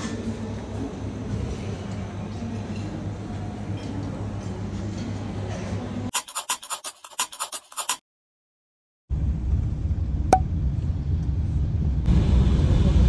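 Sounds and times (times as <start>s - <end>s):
scribbling clicks and scratches: 6.1s - 8.0s
low room hum: 9.1s - 13.0s
low steady rumble: 9.1s - 13.0s.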